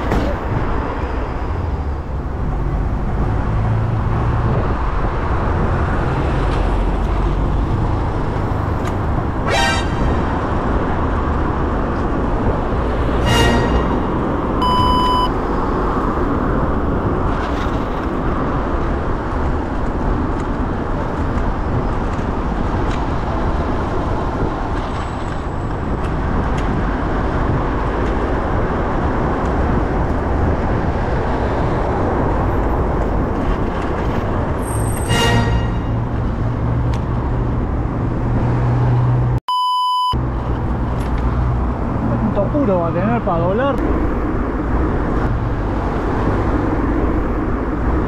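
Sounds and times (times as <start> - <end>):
cars passing: 0.0 - 39.4, 40.2 - 48.0
wind and road rumble: 0.0 - 39.4, 40.0 - 48.0
brief pitched tone: 14.6 - 15.3, 39.5 - 40.2
short electronic beep: 14.6 - 15.3, 39.5 - 40.2.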